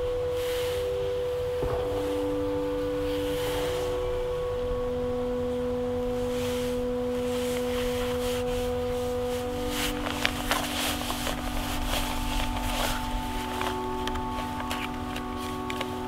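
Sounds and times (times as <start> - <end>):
sustained drone tones: 0.0 - 16.0
low rumble: 1.0 - 16.0
light clicks and rustles: 7.2 - 16.0.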